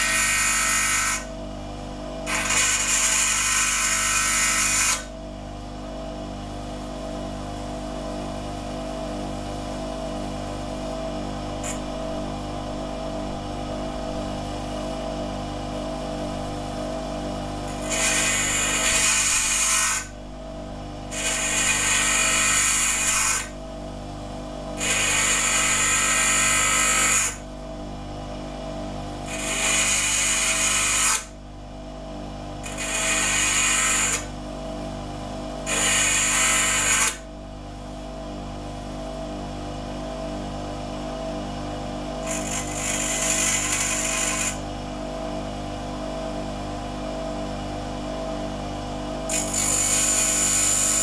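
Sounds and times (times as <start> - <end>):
bench grinder motor running: 0.0 - 1.4, 2.2 - 5.1, 16.0 - 20.3, 20.9 - 23.6, 24.7 - 27.4, 29.2 - 31.3, 32.5 - 34.4, 35.5 - 37.3, 42.0 - 44.7, 49.1 - 51.0
nail grinding on wheel: 2.3 - 5.1, 17.7 - 20.1, 21.1 - 23.5, 24.8 - 27.4, 29.2 - 31.3, 32.6 - 34.3, 35.7 - 37.2, 42.2 - 44.6, 49.3 - 51.0.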